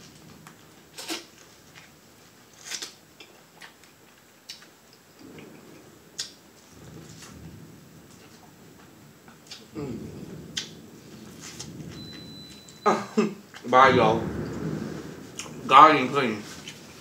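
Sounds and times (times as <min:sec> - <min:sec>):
chewing corn on the cob: 0:02.5 - 0:05.4.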